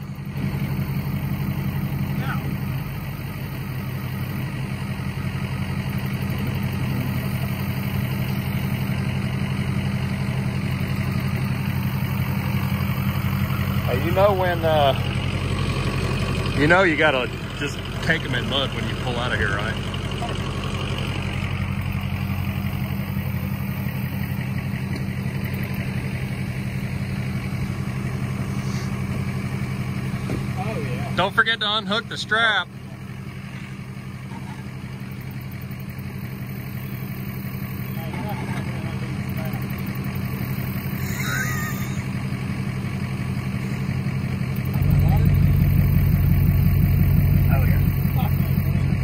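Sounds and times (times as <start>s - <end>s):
truck engine idling: 0.0s - 49.0s.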